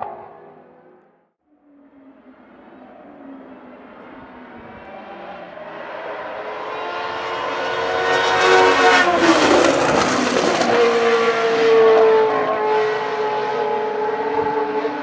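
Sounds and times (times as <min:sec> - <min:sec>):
racing car engine passing at high revs: 0:01.6 - 0:15.0.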